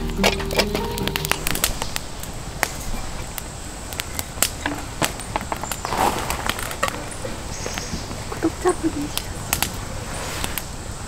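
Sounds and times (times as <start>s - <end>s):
music: 0.0s - 1.7s
campfire crackling: 0.0s - 11.0s.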